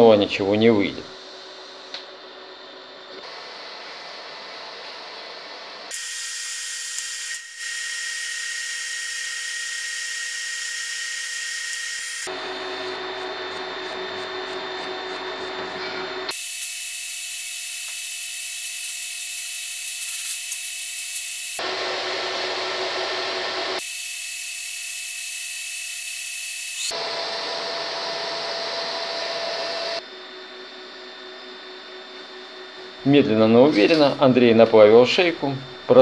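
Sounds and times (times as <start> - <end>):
welding arc hissing: 5.9 - 12.4.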